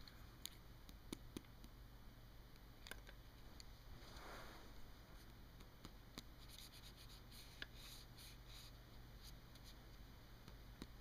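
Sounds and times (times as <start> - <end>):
pen scratching on paper: 6.4 - 9.8.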